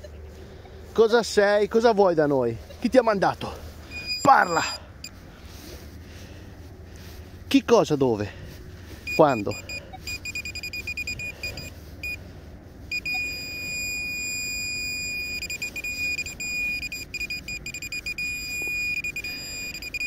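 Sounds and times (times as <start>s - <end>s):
metal detector beeping: 3.9s - 5.1s, 9.0s - 12.2s, 12.9s - 20.0s
metal detector steady high tone: 3.9s - 5.1s, 9.0s - 12.2s, 12.9s - 20.0s.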